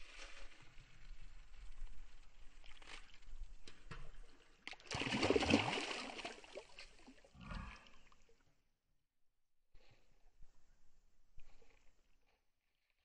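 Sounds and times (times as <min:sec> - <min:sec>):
fish thrashing and splashing water: 0:04.7 - 0:07.2.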